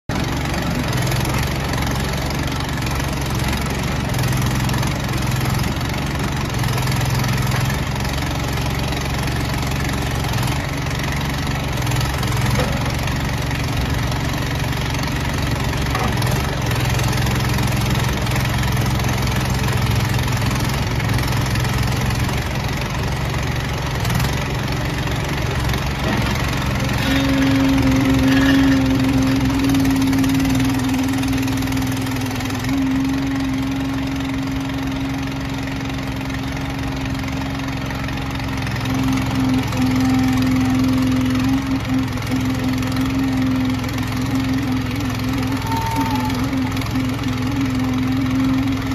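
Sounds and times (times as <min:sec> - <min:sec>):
backhoe engine running: 0:00.0 - 0:48.9
hydraulic whine: 0:23.7 - 0:48.9.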